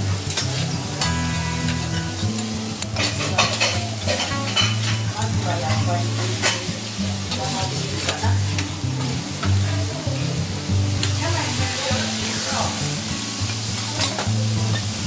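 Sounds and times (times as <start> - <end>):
garlic sizzling on griddle: 0.0 - 15.0
spatula scraping hot plate: 0.2 - 9.1.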